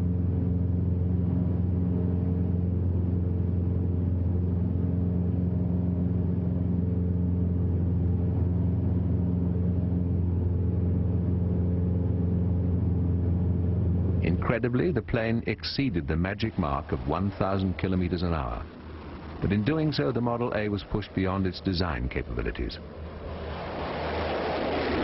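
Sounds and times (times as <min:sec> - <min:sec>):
aircraft engine droning: 0:00.0 - 0:25.0.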